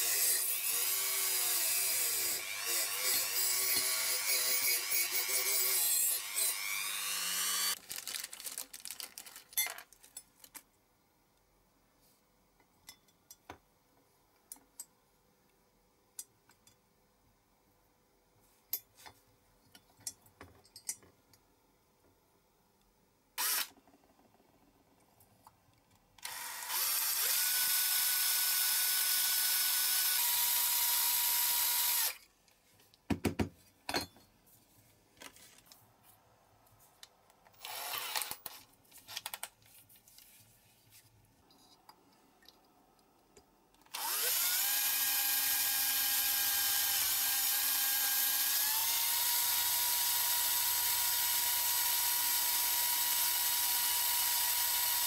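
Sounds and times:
cordless drill whining: 0.0 - 7.8, 23.4 - 23.8, 26.2 - 32.2, 37.6 - 38.6, 43.9 - 55.0.

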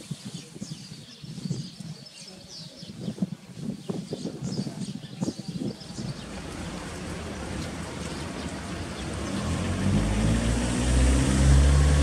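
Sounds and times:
vehicle engine approaching: 6.0 - 12.0.

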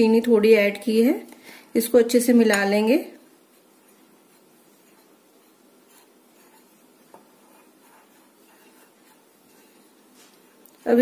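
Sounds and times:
spoon stirring in glass bowl: 3.4 - 11.0.

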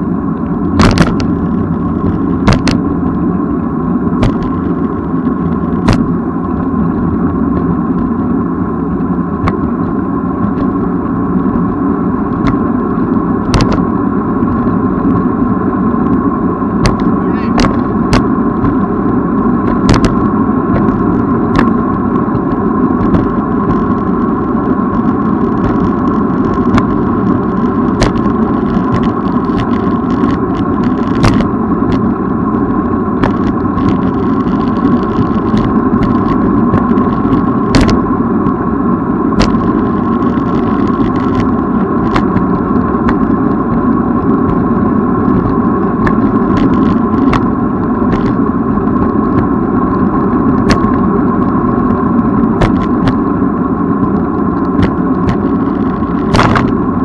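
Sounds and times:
bicycle tyre and wind rumble: 0.0 - 57.0
constant hum: 0.0 - 57.0
bicycle clicks and rattles: 24.9 - 32.1, 33.2 - 38.0, 39.4 - 43.6, 45.3 - 48.4.

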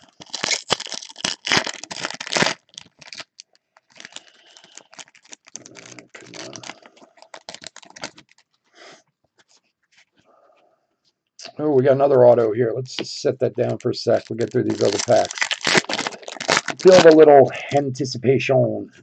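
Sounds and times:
foil wrapper tearing: 0.0 - 8.5, 13.6 - 17.3
foil crinkling: 0.0 - 8.6, 13.6 - 17.3.

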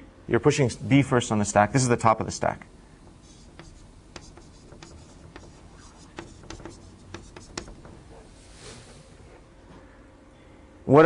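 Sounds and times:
writing tool on a board: 3.0 - 8.3.

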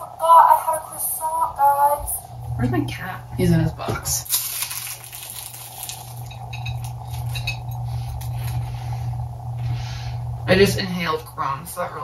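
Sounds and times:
steady low hum: 0.0 - 12.0
croissant crust crunching: 4.2 - 8.7.

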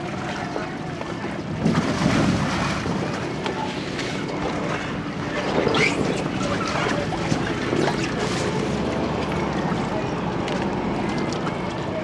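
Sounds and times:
pool water splashing: 0.0 - 12.0
wind noise on microphone: 1.4 - 3.1.

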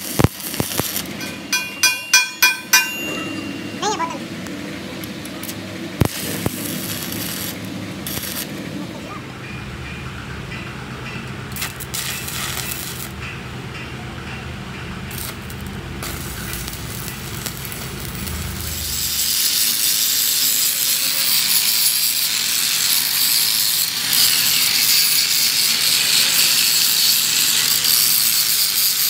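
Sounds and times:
welding crackling hum: 0.0 - 8.8, 11.5 - 13.2, 15.0 - 29.0
angle grinder grinding metal: 0.7 - 3.8.

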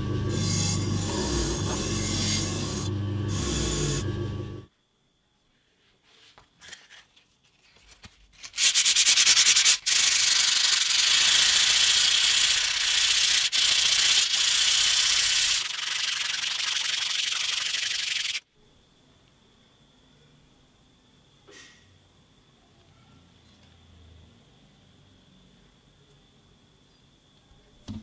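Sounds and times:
sandpaper scratching metal blade: 8.4 - 18.4.

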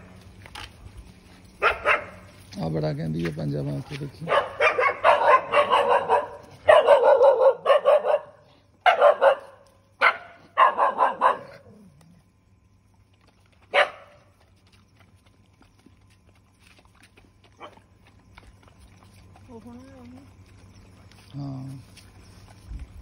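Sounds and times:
dogs barking: 1.6 - 2.4, 4.1 - 11.9, 13.7 - 14.4, 17.5 - 18.2.

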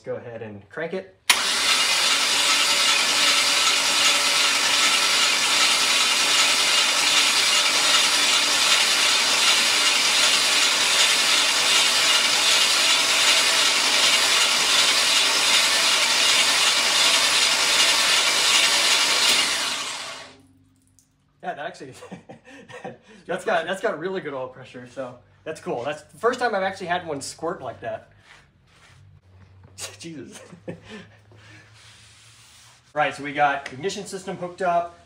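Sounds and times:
starter motor cranking engine: 1.3 - 20.4.

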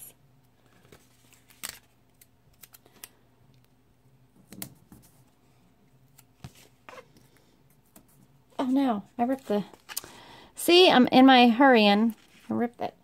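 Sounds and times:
paper rustling: 12.0 - 12.6.

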